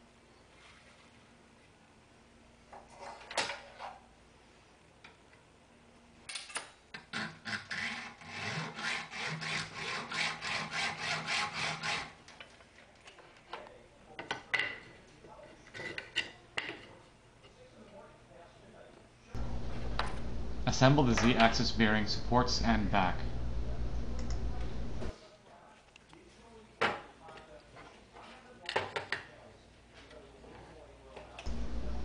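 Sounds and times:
hacksaw cutting metal: 7.0 - 12.2.

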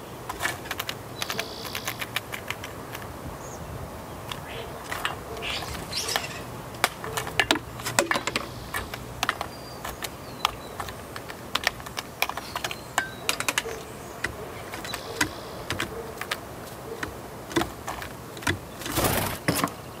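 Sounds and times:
beak knocking shells in metal bowl: 6.0 - 16.4, 17.0 - 18.7.

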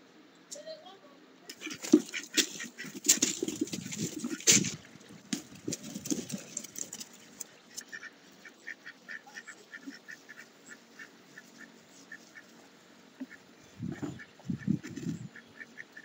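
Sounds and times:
duck quacking: 1.5 - 3.5, 7.7 - 12.6, 13.2 - 16.0
ducklings peeping: 1.5 - 16.0.

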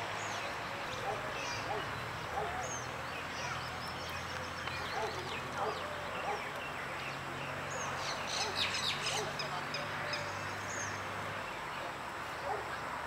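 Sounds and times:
birds chirping: 0.0 - 13.0.

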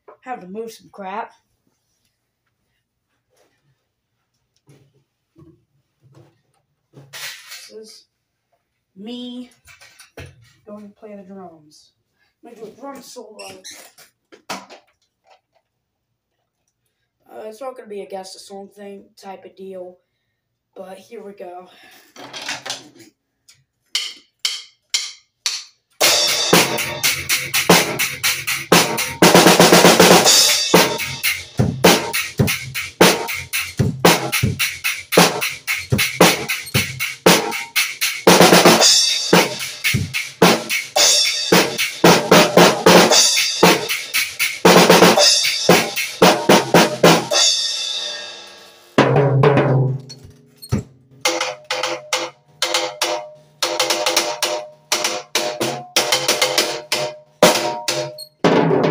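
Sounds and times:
drum kit solo: 24.0 - 58.9
cymbal crashes: 26.0 - 33.6, 35.2 - 48.9.

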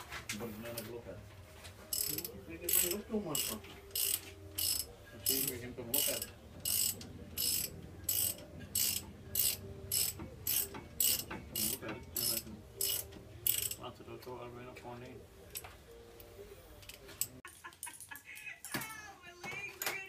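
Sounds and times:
ratchet wrench clicking: 1.9 - 13.8.

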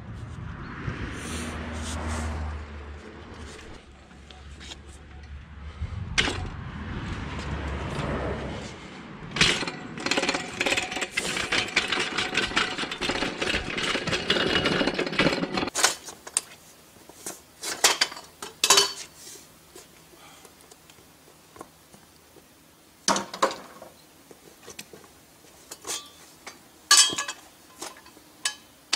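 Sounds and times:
small engine clattering: 9.4 - 15.8
metal clanks from steel frame: 25.7 - 28.7.

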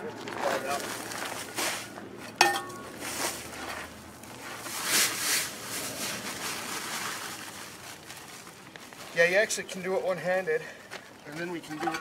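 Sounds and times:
shovel clanking on gravel: 2.3 - 3.2
sandbag rustling: 2.9 - 9.4.

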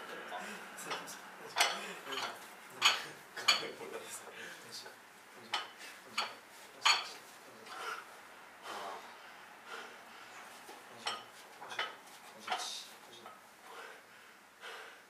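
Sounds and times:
person breathing: 0.1 - 0.8, 1.7 - 2.1, 4.0 - 4.7, 7.6 - 10.6, 13.6 - 15.0.

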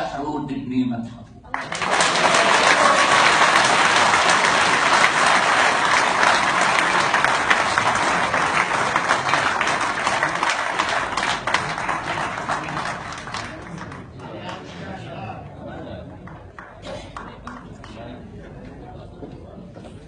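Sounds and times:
audience applauding: 1.5 - 14.6, 16.2 - 18.1.

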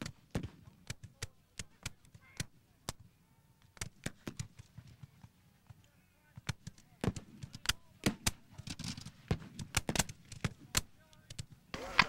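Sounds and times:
musket fire cracks: 6.4 - 12.0.

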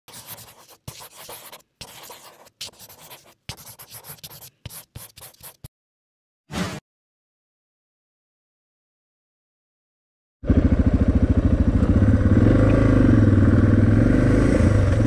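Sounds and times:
scratchy strokes: 0.1 - 5.7.

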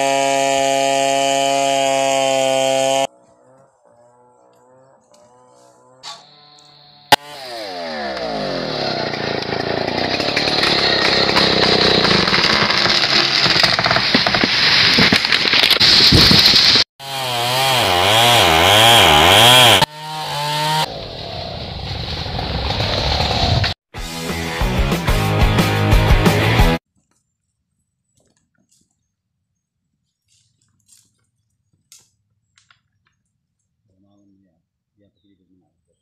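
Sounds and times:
chainsaw revving: 0.0 - 6.0, 7.1 - 14.9, 16.6 - 21.2.

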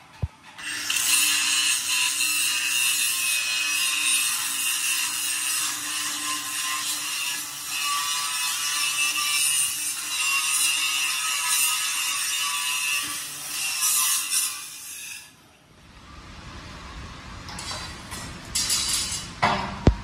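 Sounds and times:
power tool cutting: 0.6 - 15.3.

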